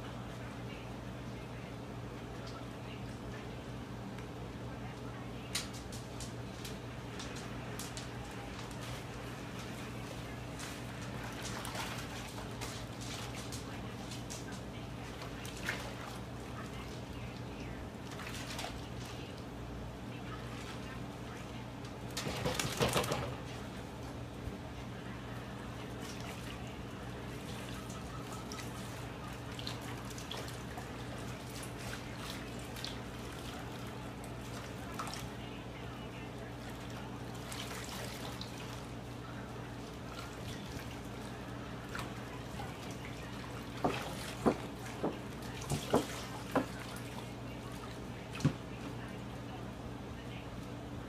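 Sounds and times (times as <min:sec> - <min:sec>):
steady low hum: 0:00.0 - 0:51.0
water splashing in metal tub: 0:22.1 - 0:23.5, 0:36.6 - 0:39.0, 0:39.8 - 0:48.6.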